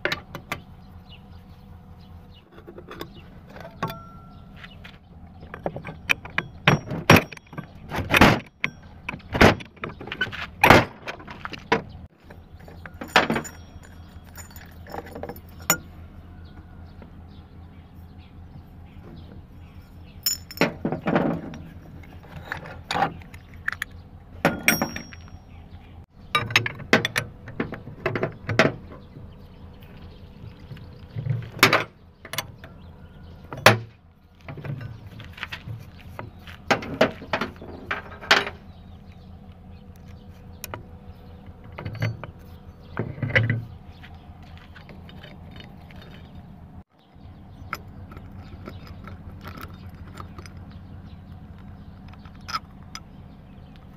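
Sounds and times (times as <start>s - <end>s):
metal tools clanking: 2.3s - 17.4s, 18.5s - 53.9s
high metallic ring: 12.8s - 15.9s, 24.5s - 25.6s.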